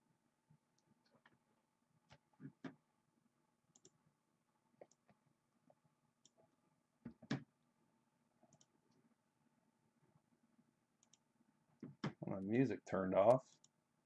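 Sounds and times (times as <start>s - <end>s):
small clicks: 3.7s - 4.0s, 8.5s - 9.0s, 11.0s - 11.3s, 13.3s - 13.8s.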